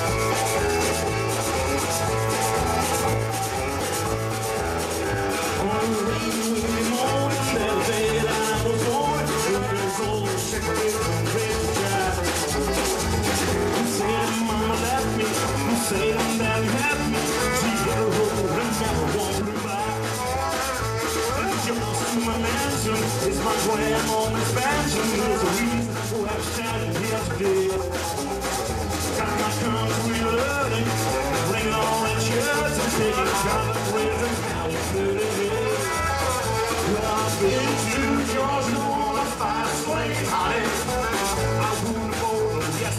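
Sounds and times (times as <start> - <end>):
accordion: 0.0 - 42.9
drum kit: 0.0 - 42.9
electric guitars: 0.0 - 42.9
live band playing rock instrumental: 0.0 - 42.9.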